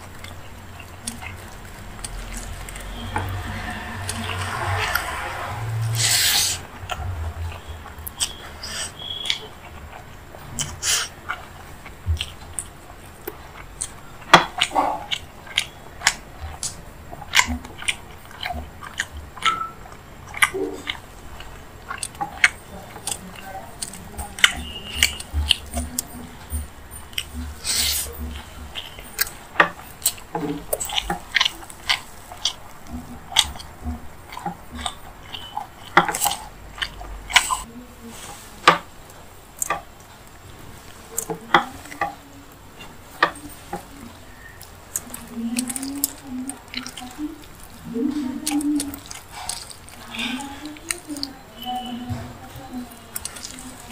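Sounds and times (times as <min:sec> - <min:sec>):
chewing and wet mouth smacks: 0:00.0 - 0:53.9.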